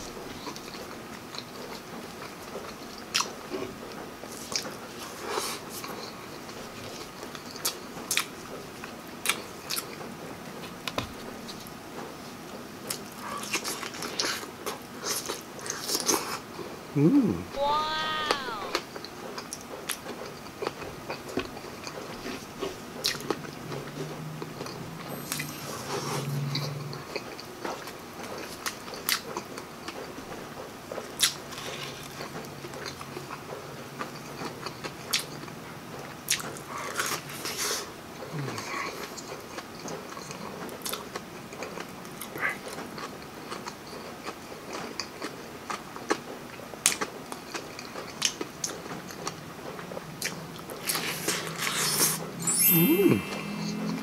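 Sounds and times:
person chewing food: 0.0s - 10.1s, 12.8s - 30.2s, 31.0s - 52.3s
closed-mouth humming: 17.0s - 18.9s, 50.8s - 54.0s.

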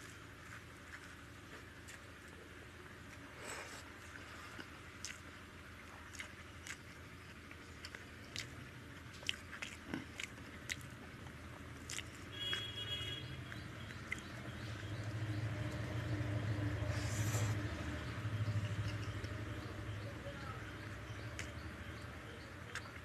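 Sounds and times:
chewing and lip smacks: 0.0s - 12.7s, 13.3s - 15.8s, 20.9s - 23.0s
wet squelches of food mashing: 0.0s - 20.0s, 20.7s - 23.0s.

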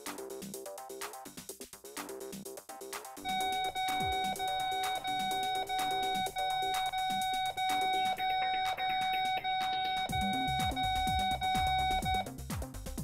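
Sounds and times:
pulse oximeter alarm beeping: 3.3s - 12.3s.

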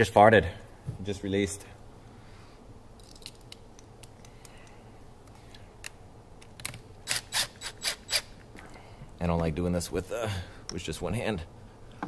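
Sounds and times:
small parts clicking: 3.0s - 8.7s.

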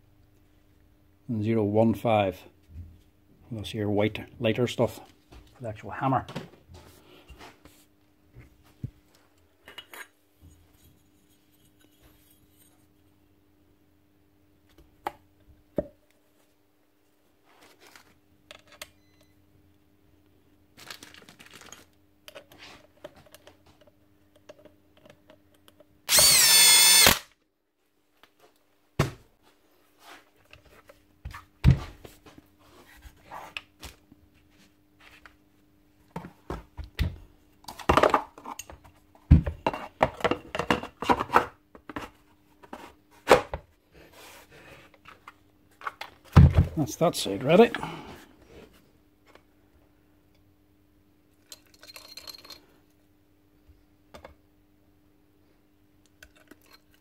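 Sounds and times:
power tool whining: 26.1s - 27.3s
metal parts clinking and knocking: 51.4s - 52.6s.

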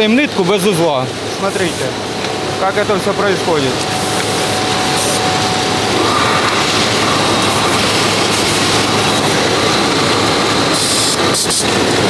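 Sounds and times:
yarn winding machine whirring: 3.0s - 12.0s.

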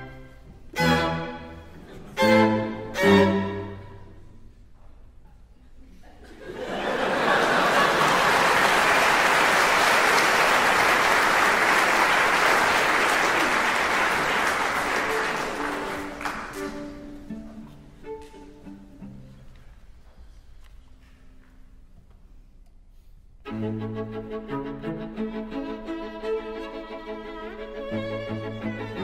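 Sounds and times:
audience applauding: 7.0s - 16.8s.

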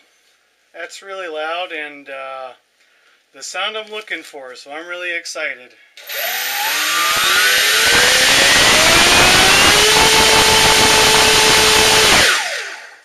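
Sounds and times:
electric motor whine: 6.0s - 13.0s.

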